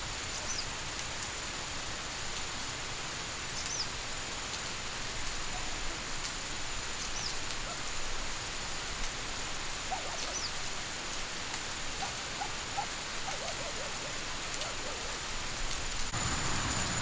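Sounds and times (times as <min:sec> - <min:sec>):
sprinklers spraying water: 0:00.0 - 0:17.0
bird chirping: 0:09.9 - 0:10.6.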